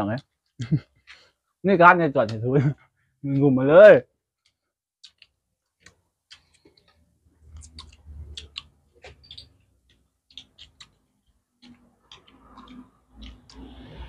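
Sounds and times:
wet mouth clicks and smacks: 0:04.4 - 0:11.0, 0:11.6 - 0:14.0
chewing: 0:04.4 - 0:14.0.

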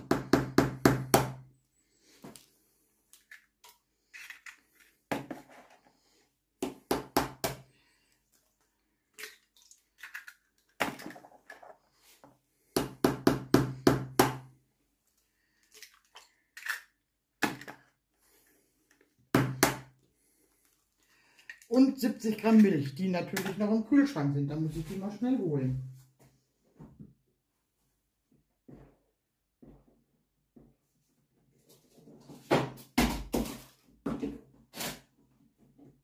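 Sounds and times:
eggshells knocking and cracking: 0:09.1 - 0:11.8, 0:15.7 - 0:17.9.

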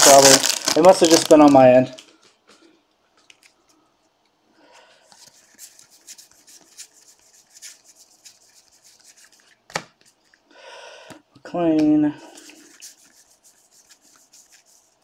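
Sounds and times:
cards flipping and ticking: 0:02.0 - 0:03.8.

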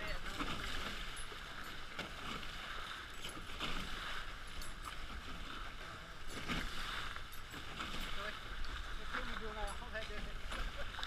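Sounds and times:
rush of water and spray: 0:00.0 - 0:11.0
small water splashes: 0:00.0 - 0:11.0.

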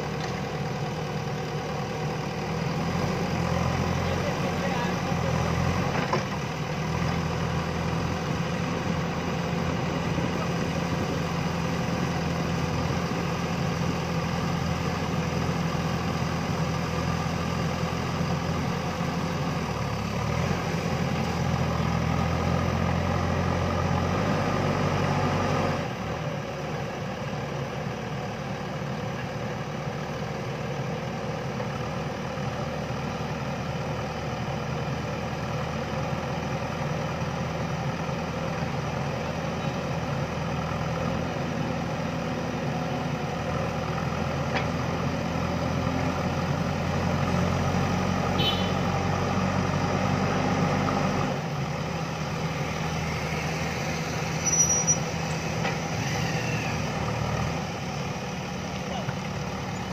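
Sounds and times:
diesel engine running: 0:00.0 - 0:59.9
brief squeak: 0:54.3 - 0:56.8.

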